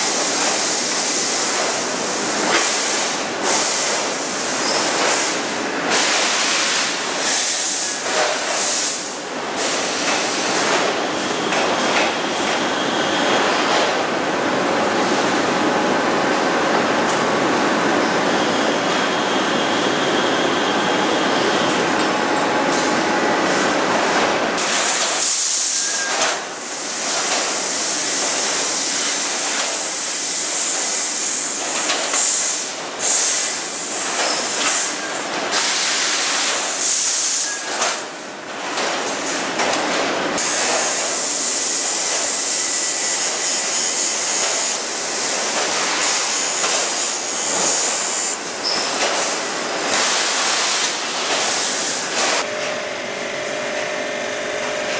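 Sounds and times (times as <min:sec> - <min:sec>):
heavy machinery running: 0:38.6 - 0:54.9.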